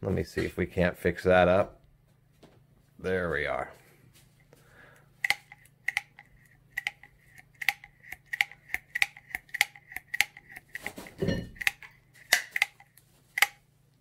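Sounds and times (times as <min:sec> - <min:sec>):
hand riveter metallic clicks: 0:11.6 - 0:13.6.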